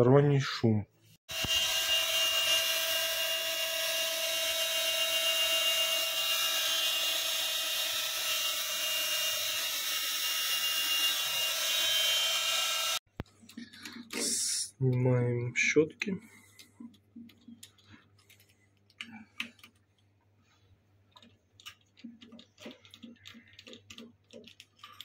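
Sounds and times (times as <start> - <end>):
electric motor whining: 1.3 - 13.0.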